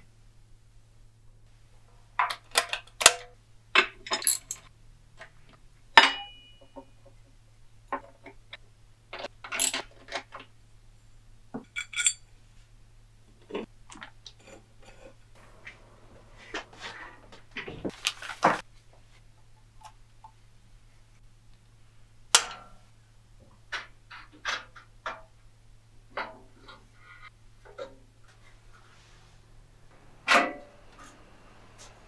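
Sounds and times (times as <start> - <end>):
faint low hum: 0.0 - 32.0
hand tools clinking on metal: 4.0 - 4.7, 6.0 - 6.9, 11.6 - 12.2.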